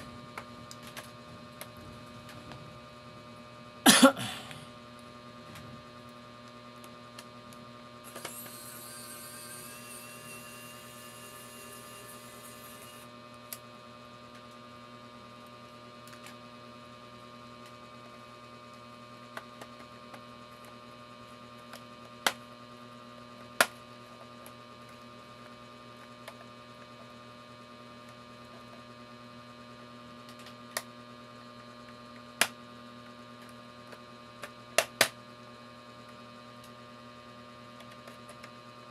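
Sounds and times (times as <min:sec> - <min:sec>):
electrical mains hum: 0:00.0 - 0:38.9
thin whine: 0:08.0 - 0:13.1.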